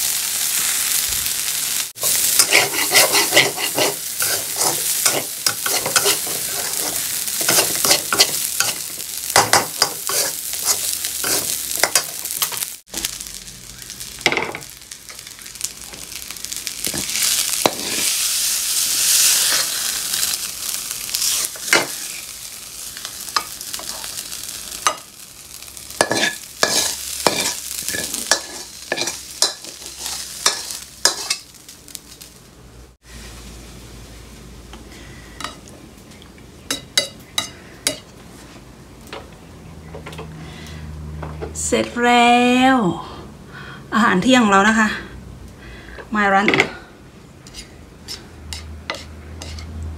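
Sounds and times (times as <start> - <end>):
rice sizzling in a pan: 0.0 - 39.0, 46.2 - 49.8
metal spatula scraping pan: 2.0 - 12.6, 17.0 - 18.2, 26.0 - 31.5, 47.4 - 49.7.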